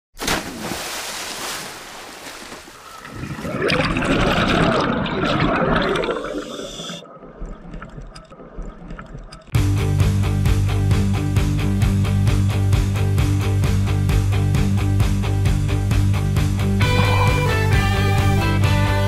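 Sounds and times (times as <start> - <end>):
water bubbling and rushing: 0.2 - 9.3, 16.8 - 18.8
swirl of bubbles: 3.0 - 7.1.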